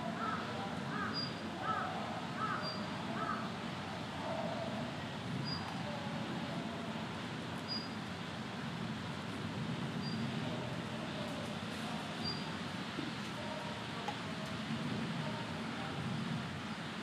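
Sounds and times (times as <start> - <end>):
steady low background noise: 0.0 - 17.0
crow cawing: 0.2 - 3.5.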